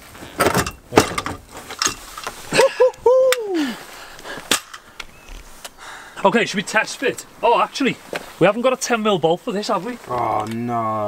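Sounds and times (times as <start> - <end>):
metal frame clanking: 0.4 - 2.4.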